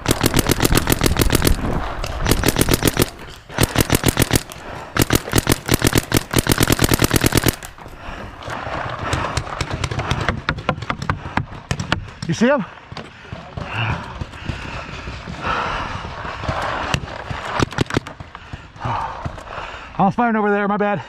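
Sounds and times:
paintball marker firing: 0.0 - 7.9.

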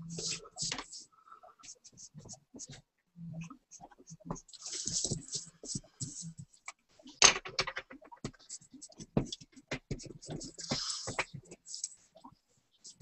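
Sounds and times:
pencil scratching on paper: 10.0 - 12.0.

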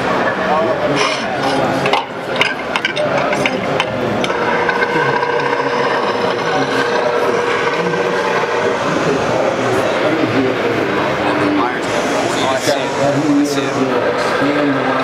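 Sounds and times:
crowd din: 0.0 - 15.0
steady hum with held tone: 0.0 - 15.0
sharp clicks and ticks: 1.8 - 8.8.

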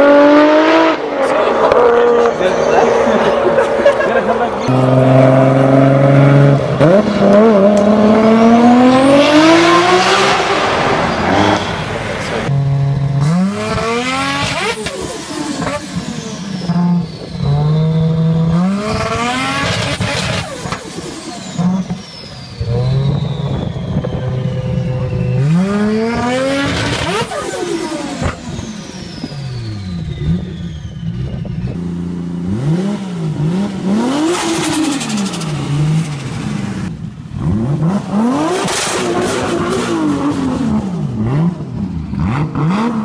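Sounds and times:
car accelerating hard: 0.0 - 22.0
high turbo whistle: 22.0 - 26.5.

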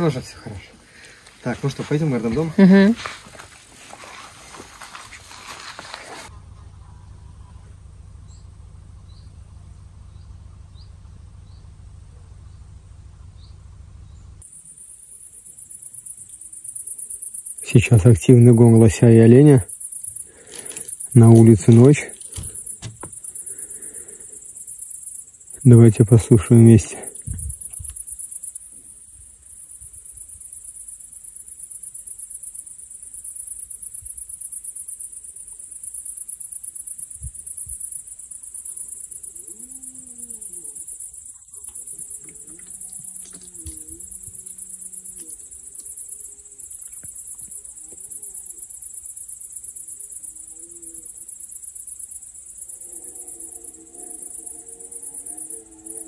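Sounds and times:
crickets chirring: 0.0 - 56.0
distant animal calls: 16.6 - 25.6, 38.3 - 51.6, 52.4 - 56.0.

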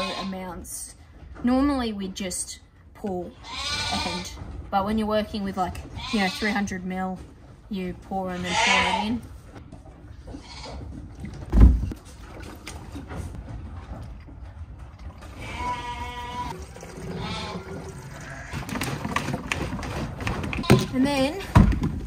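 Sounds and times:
sheep bleating: 15.4 - 18.6.

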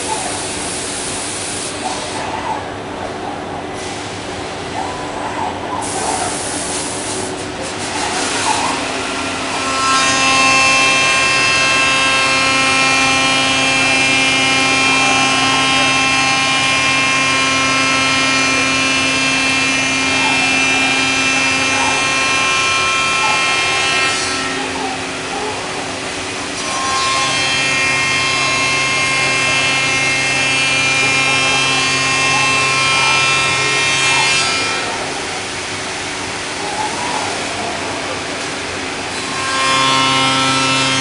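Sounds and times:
hissing machine noise: 0.0 - 41.0
router spindle whine: 8.6 - 41.0.

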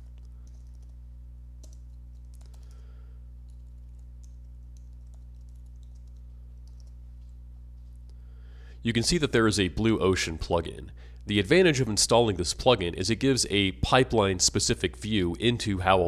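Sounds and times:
steady low hum: 0.0 - 16.0
keyboard keystrokes: 1.6 - 2.7, 3.5 - 7.0.

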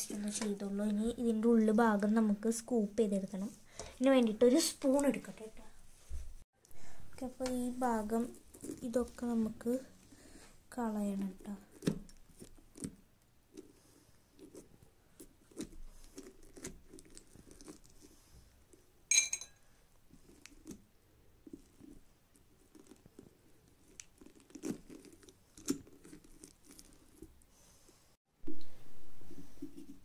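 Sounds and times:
clink on ceramic bowl: 19.1 - 19.6
hand scooping pumpkin pulp: 20.0 - 28.1.

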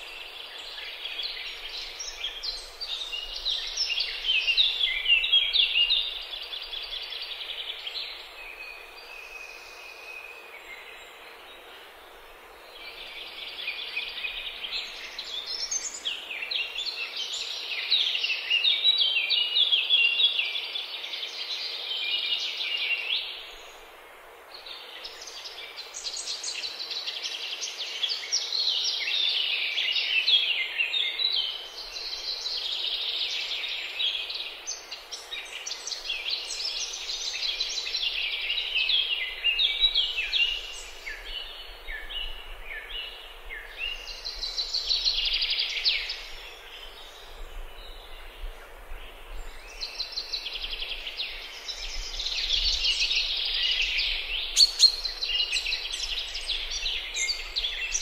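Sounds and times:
songbirds chirping and trilling: 0.0 - 58.0.

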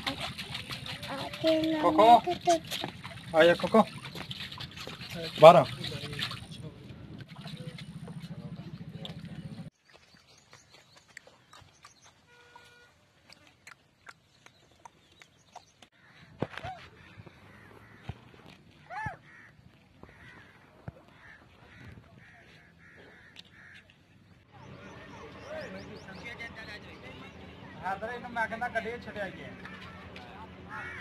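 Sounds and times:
crow cawing: 16.0 - 18.2, 18.8 - 23.9, 29.5 - 31.0.

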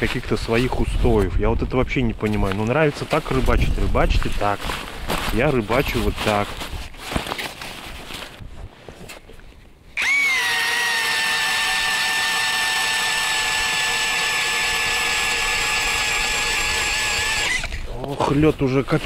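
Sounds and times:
cordless drill boring ice: 10.0 - 17.8.

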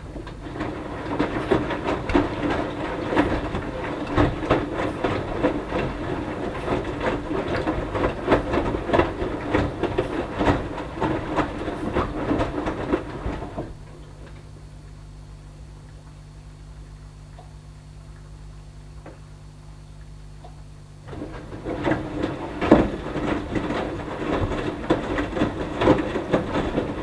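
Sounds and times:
washing machine drum tumbling: 0.0 - 14.5, 21.0 - 27.0
wet laundry slapping: 0.0 - 14.5, 20.4 - 27.0
water sloshing: 0.0 - 15.0, 20.0 - 27.0
steady machine hum: 0.0 - 27.0.

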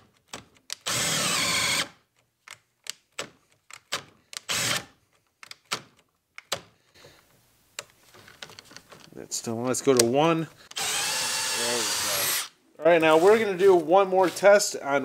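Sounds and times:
drill boring into wood: 0.8 - 2.0, 4.5 - 4.9, 10.7 - 13.5
drill trigger blips: 10.7 - 12.5.

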